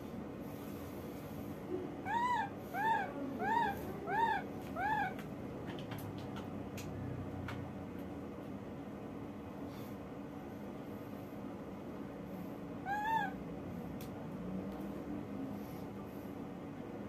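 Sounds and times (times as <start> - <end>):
baby monkey coo calls: 2.0 - 5.2, 12.8 - 13.4.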